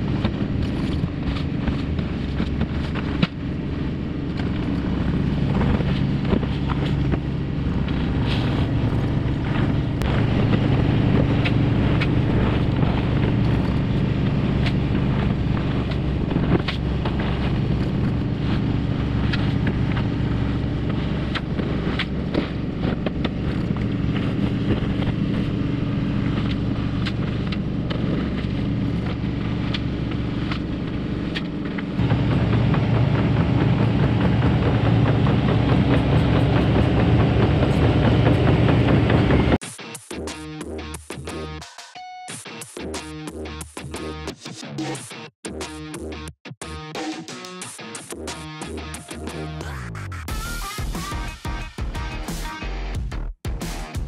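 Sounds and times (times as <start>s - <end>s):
excavator diesel engine running: 0.0s - 39.6s
machine knocks and clanks: 0.0s - 39.6s.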